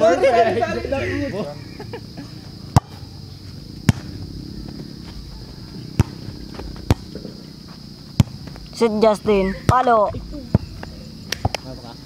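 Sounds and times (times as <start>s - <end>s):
volleyball slaps: 2.7s - 3.0s, 3.8s - 4.2s, 6.0s - 7.3s, 8.2s - 8.6s, 10.5s - 11.7s.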